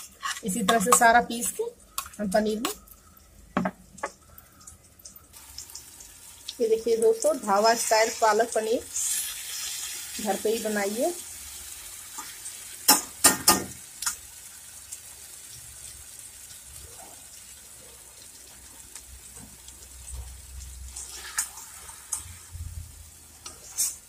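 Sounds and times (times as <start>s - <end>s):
gravy bubbling and simmering: 0.0s - 10.0s, 11.3s - 24.0s
spatula knocking on pan: 3.6s - 4.1s.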